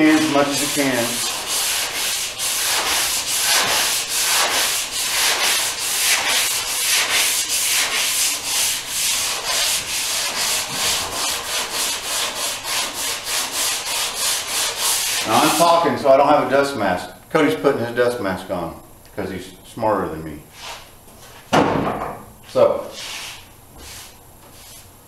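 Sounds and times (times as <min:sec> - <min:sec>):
sandpaper rubbing on steel: 0:00.0 - 0:15.8.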